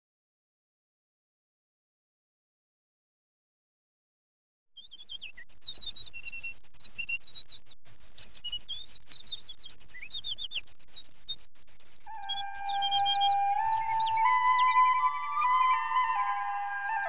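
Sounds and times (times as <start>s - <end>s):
small birds chirping: 4.8s - 17.0s
music with long held notes: 12.1s - 17.0s.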